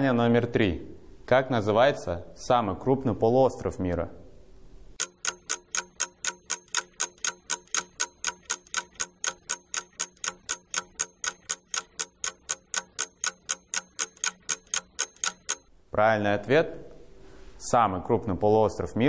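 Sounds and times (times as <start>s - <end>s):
clock ticking: 5.0s - 15.7s.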